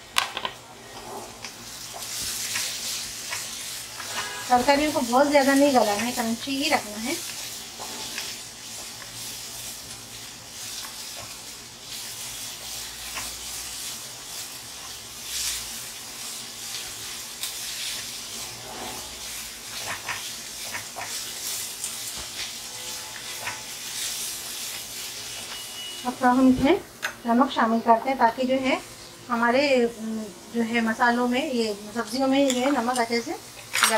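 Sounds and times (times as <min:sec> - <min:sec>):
vegetables sizzling in oil: 0:00.0 - 0:33.9
spatula scraping and tapping wok: 0:00.3 - 0:09.2, 0:10.7 - 0:25.9.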